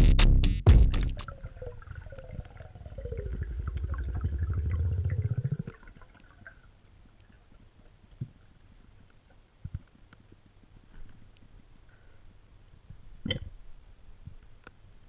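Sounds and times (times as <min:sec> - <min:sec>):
muffled underwater pulsing rumble: 0:01.1 - 0:05.8
faint hiss: 0:06.2 - 0:15.0.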